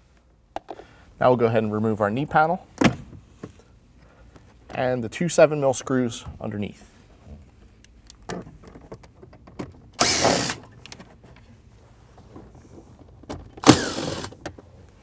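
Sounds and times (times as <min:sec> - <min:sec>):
cordless drill whirring: 0:10.0 - 0:10.6, 0:13.6 - 0:14.4.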